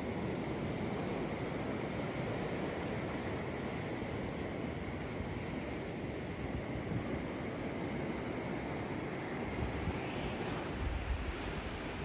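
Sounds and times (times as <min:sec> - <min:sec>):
wind buffeting microphone: 0:09.5 - 0:12.0.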